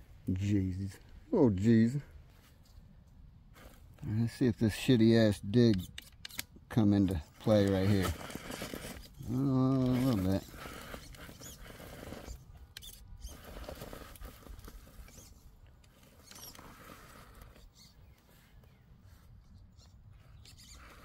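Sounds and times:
rc car tyres scrabbling over rock: 7.4s - 17.9s.

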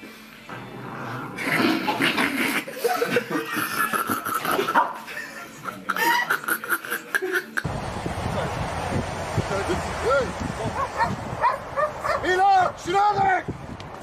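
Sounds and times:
man laughing: 2.4s - 7.6s.

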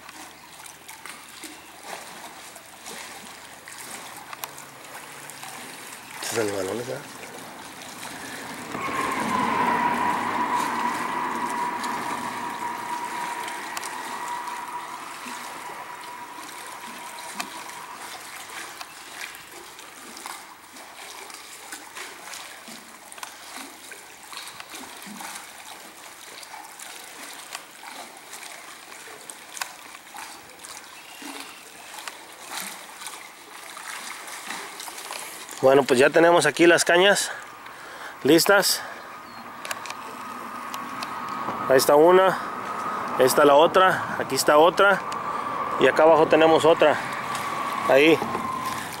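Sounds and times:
river water lapping on concrete: 0.0s - 8.8s, 14.0s - 46.0s
rush of noise: 7.1s - 19.4s, 39.1s - 49.0s
ringing tone: 7.1s - 19.5s, 38.8s - 49.0s.

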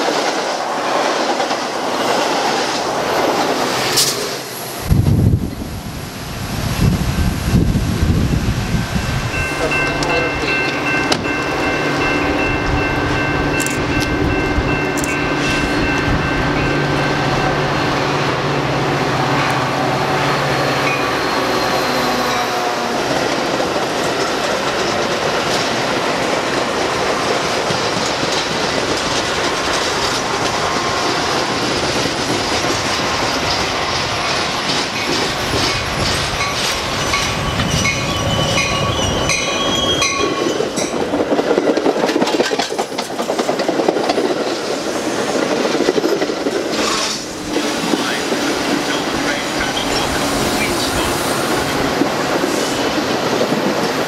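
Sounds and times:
train rail noise: 0.0s - 54.0s
locomotive engine drone: 8.1s - 25.1s
high wheel squeal: 20.2s - 22.8s, 36.8s - 40.7s
wheel clicks over rail joints: 40.8s - 44.6s.

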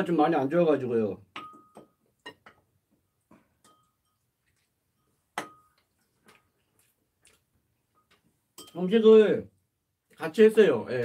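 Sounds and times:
metal utensils clinking on porcelain: 3.6s - 4.2s, 8.6s - 8.8s.

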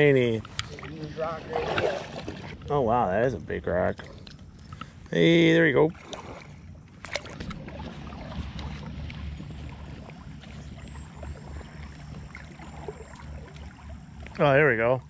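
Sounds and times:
river water splashing: 0.0s - 3.0s, 3.8s - 15.0s
wind rumble on microphone: 5.9s - 15.0s.

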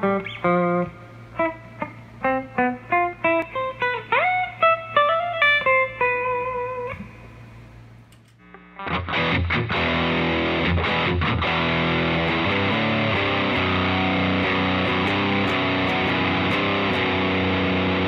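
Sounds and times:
amp hum: 0.0s - 18.0s
clean electric guitar notes: 8.4s - 18.0s.

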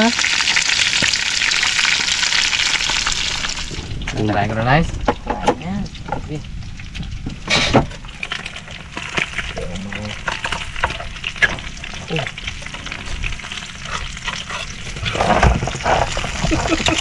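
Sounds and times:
food sizzling in hot oil: 0.0s - 17.0s
oil crackling and spattering: 0.0s - 17.0s.

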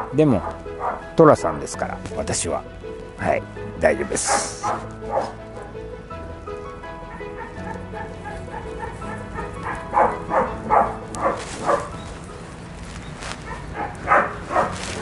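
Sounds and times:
dog barking: 0.0s - 1.1s, 4.2s - 5.8s, 7.1s - 12.0s, 13.4s - 15.0s.

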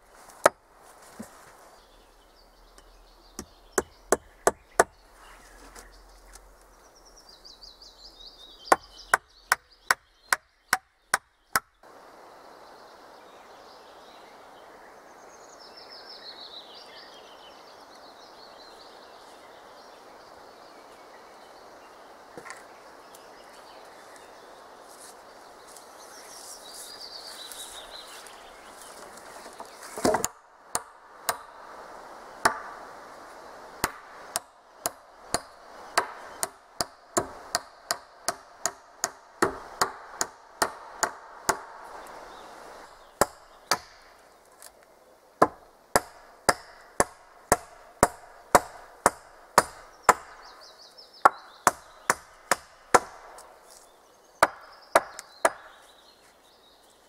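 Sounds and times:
sharp blows on wood: 33.8s - 41.9s, 45.4s - 50.4s, 54.4s - 55.8s.

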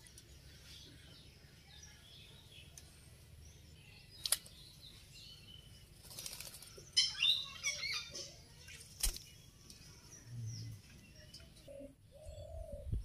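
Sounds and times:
wing flapping and splashing: 6.0s - 6.8s.

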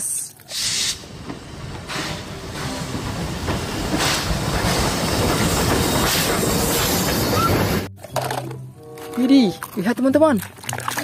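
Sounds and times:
steam hiss bursts: 0.5s - 7.2s
train rumble: 0.7s - 7.9s.

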